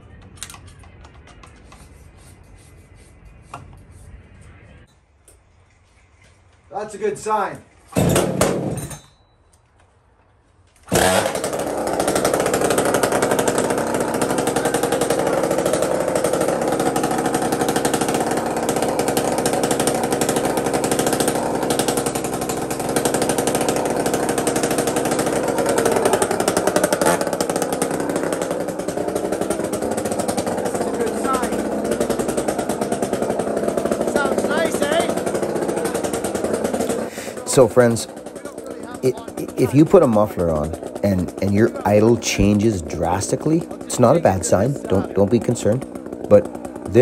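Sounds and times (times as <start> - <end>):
chainsaw engine idling: 10.8 - 47.0.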